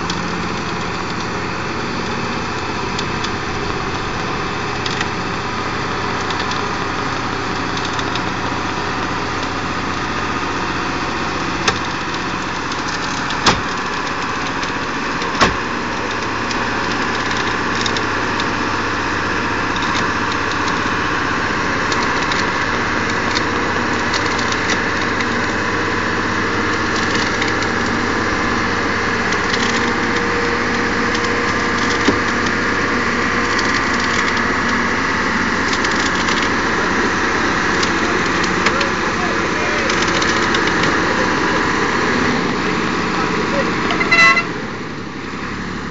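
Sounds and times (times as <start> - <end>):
rattling: 0.0 - 44.1
vehicle engine climbing: 0.0 - 45.9
sharp knocks: 13.4 - 13.9.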